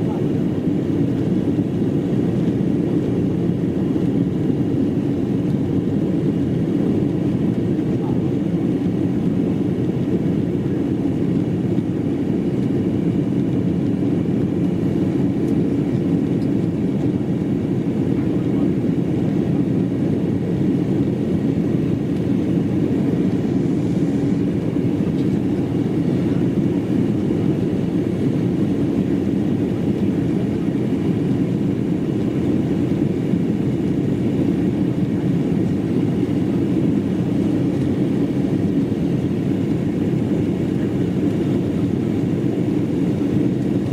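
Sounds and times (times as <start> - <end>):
airliner cabin engine drone: 0.0 - 43.9.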